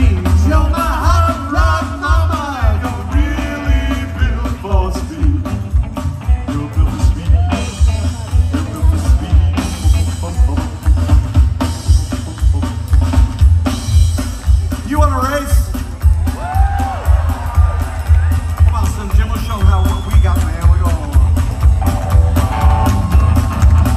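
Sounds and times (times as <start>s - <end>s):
drum kit: 0.0s - 23.9s
upright bass: 0.0s - 23.9s
electric guitar: 21.1s - 23.9s.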